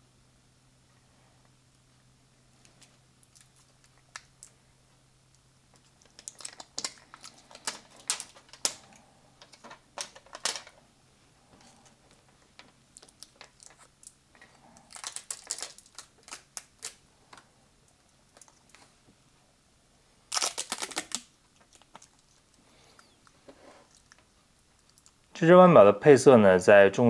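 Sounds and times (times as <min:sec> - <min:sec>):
plastic film crinkling: 0:05.8 - 0:10.7, 0:12.6 - 0:17.0, 0:20.3 - 0:22.5.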